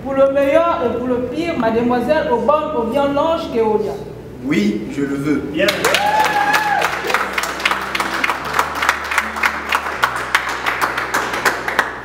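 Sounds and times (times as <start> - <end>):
people clapping: 5.6 - 12.0.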